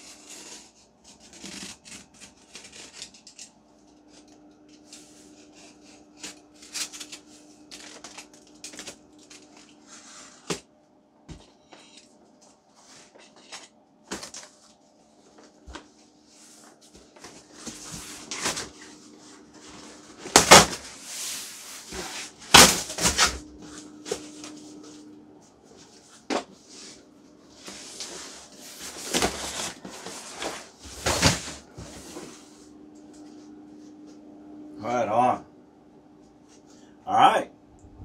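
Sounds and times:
cardboard rustling: 0:11.3 - 0:32.6
cardboard scraping: 0:15.3 - 0:25.1, 0:27.6 - 0:32.6.

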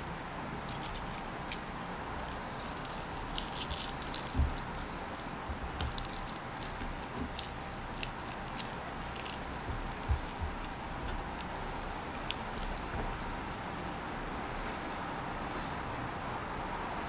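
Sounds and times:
steady background hum: 0:00.0 - 0:17.0
fingers handling raw meat: 0:05.5 - 0:13.5.

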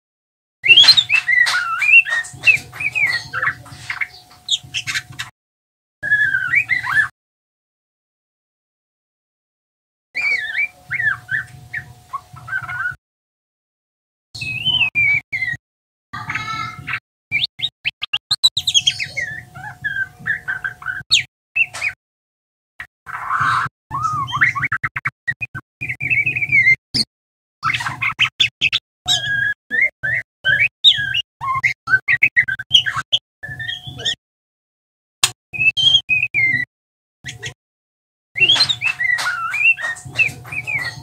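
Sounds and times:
bird singing whistles and twitters: 0:00.6 - 0:05.3, 0:06.0 - 0:07.1, 0:10.2 - 0:13.0, 0:14.4 - 0:15.6, 0:16.8 - 0:22.0, 0:23.1 - 0:34.2, 0:35.6 - 0:37.6, 0:38.4 - 0:41.0.

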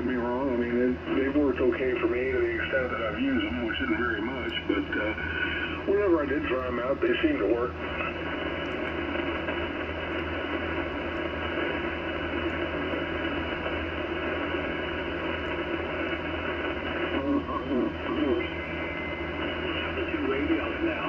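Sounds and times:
faint garbled radio voices: 0:00.0 - 0:21.0
low hum: 0:00.0 - 0:21.0
radio static hiss: 0:00.0 - 0:21.0.

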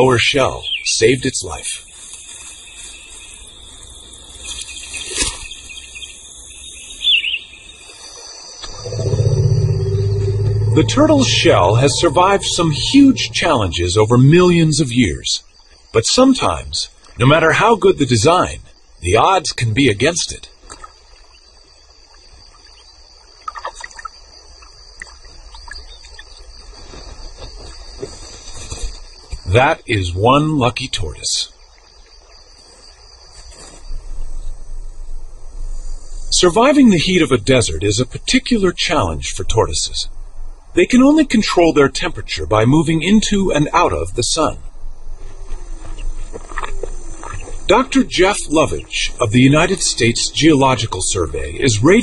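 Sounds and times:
birds chirping: 0:00.0 - 0:20.1, 0:45.4 - 0:52.0
low outdoor rumble: 0:08.7 - 0:15.4, 0:36.4 - 0:52.0
high-pitched background chorus: 0:08.8 - 0:15.0
water splashes: 0:20.5 - 0:25.9.

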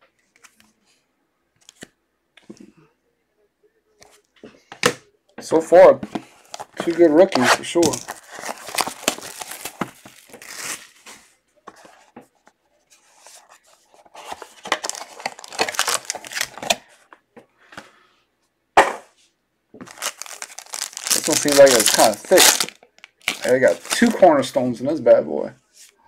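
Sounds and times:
cardboard and wrapping crackling: 0:06.4 - 0:11.3, 0:14.0 - 0:16.8, 0:19.8 - 0:24.3.

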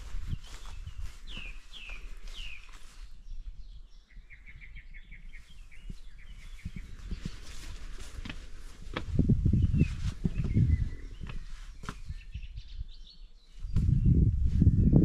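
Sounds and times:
songbird chirping and trilling: 0:00.0 - 0:15.0
low rumble with thumps: 0:08.9 - 0:11.4.

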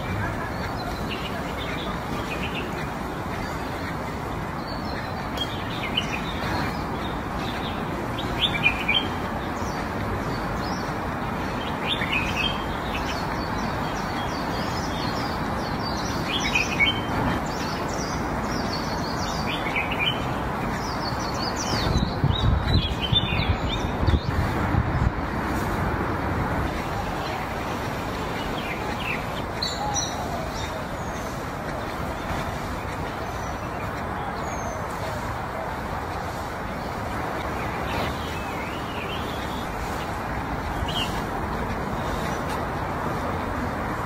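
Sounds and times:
outdoor background hiss: 0:00.0 - 0:44.0
small birds chirping: 0:00.0 - 0:44.0.

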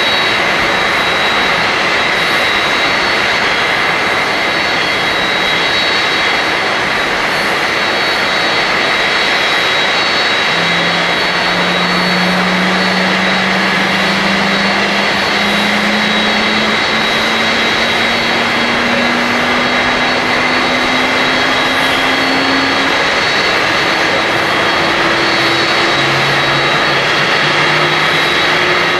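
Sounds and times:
jet engine roar with whine: 0:00.0 - 0:28.9
low hum rising in pitch: 0:08.6 - 0:28.9.

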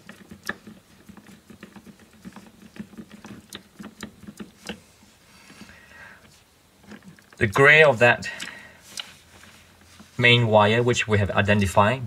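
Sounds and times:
hands rustling wires: 0:00.0 - 0:07.5, 0:08.2 - 0:10.4.

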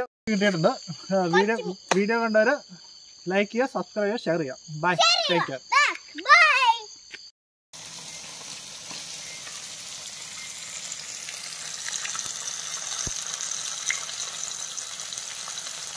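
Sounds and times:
fish sizzling in hot oil: 0:07.8 - 0:15.9
spattering oil pops: 0:11.8 - 0:14.2.

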